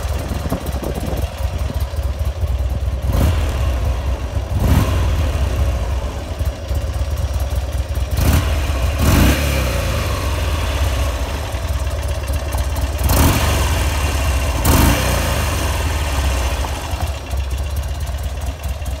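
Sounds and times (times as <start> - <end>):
motorcycle engine idling: 0.0 - 19.0
engine revving bursts: 3.0 - 6.0, 8.1 - 11.5, 13.0 - 16.7.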